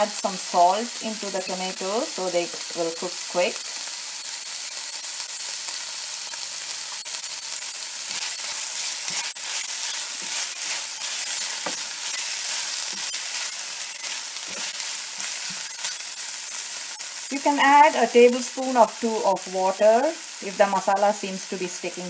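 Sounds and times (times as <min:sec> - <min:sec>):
vegetables sizzling in hot oil: 0:00.0 - 0:22.0
spatula scraping pan: 0:08.1 - 0:17.1.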